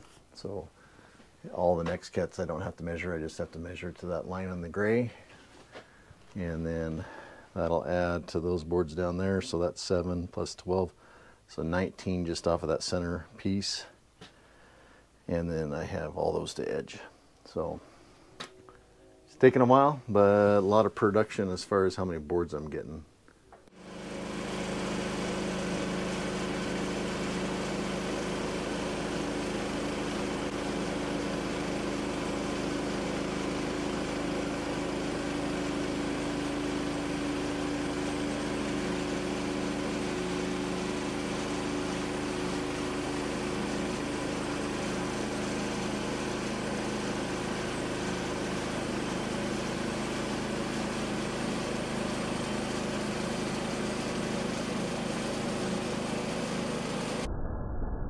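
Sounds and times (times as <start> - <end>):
bandsaw mill cutting wood: 23.7 - 57.3.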